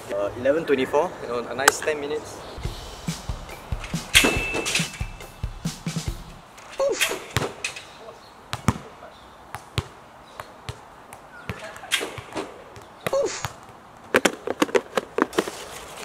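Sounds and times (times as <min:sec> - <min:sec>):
basketballs bouncing on hard court: 0:08.5 - 0:08.9, 0:09.5 - 0:14.4.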